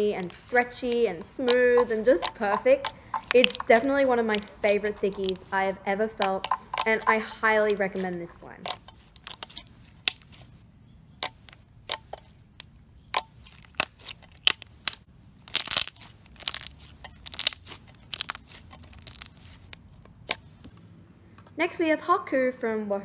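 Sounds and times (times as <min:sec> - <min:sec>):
slime clicking and popping: 0:00.2 - 0:05.5, 0:06.1 - 0:07.8, 0:08.6 - 0:10.4, 0:11.1 - 0:20.5.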